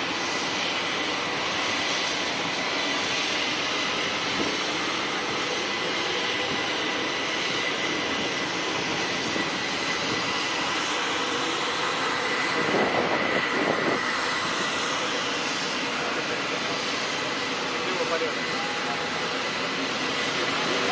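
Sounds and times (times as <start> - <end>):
jet airliner rush of air: 0.0 - 20.9.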